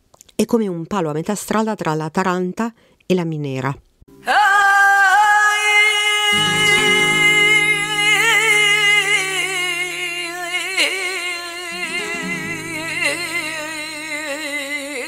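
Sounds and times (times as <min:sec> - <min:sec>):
woman singing long wavering note: 0:06.2 - 0:15.0.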